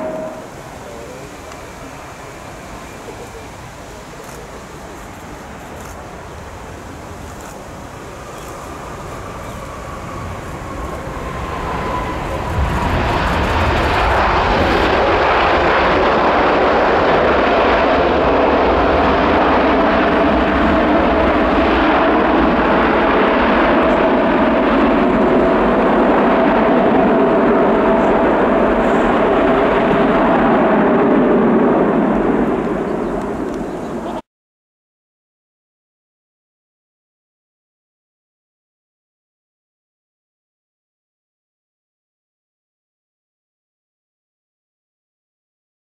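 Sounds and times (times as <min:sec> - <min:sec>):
jet engine roar with whine: 0:00.0 - 0:34.2.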